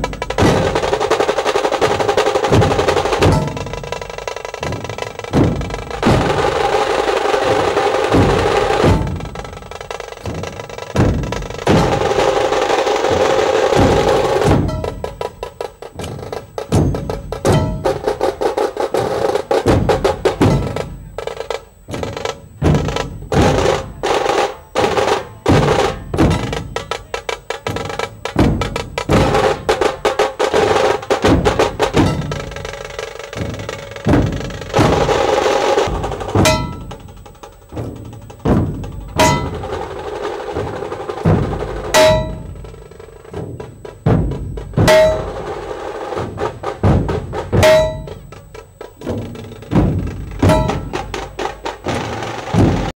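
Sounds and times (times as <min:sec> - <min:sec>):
barrel drums beaten: 0:00.0 - 0:52.9
drums rattling in fast rolls: 0:00.0 - 0:52.9
large gong strokes ringing: 0:40.6 - 0:43.4, 0:44.0 - 0:48.4.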